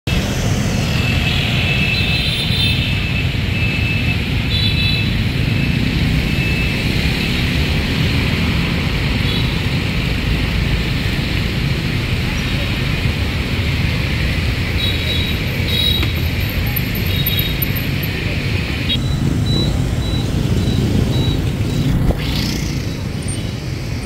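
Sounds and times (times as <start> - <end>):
motorbike engines rumbling: 0.1 - 24.0.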